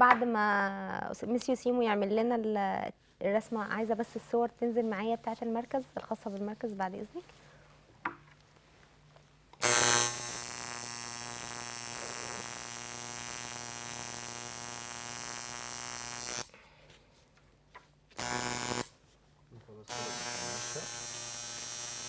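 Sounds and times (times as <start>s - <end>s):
tattoo machine buzzing: 9.6s - 16.5s, 18.2s - 18.9s, 19.9s - 22.0s.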